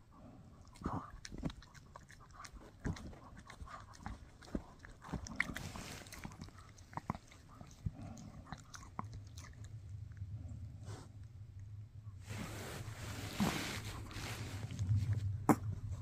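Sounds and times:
dog chewing and gnawing: 0:00.6 - 0:10.2.

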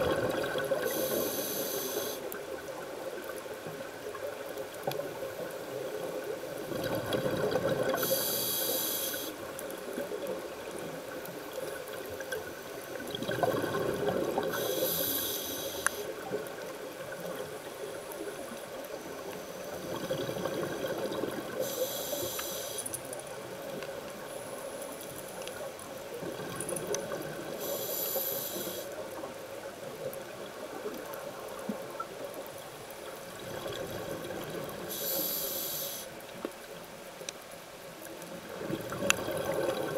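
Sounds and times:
scuba regulator breathing underwater: 0:00.1 - 0:02.4, 0:07.5 - 0:09.4, 0:13.5 - 0:16.2, 0:20.1 - 0:23.0, 0:27.6 - 0:29.0, 0:34.9 - 0:36.2.

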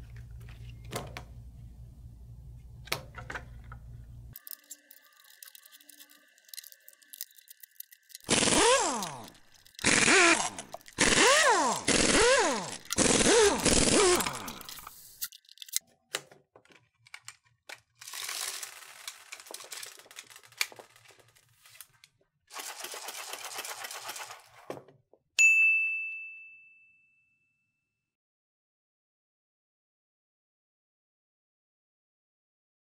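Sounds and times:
plastic pellets rattling and clicking: 0:04.4 - 0:15.8, 0:17.2 - 0:24.6
screwdriver squeaking in plastic: 0:04.4 - 0:15.8
sound-effect ding: 0:25.4 - 0:27.3.

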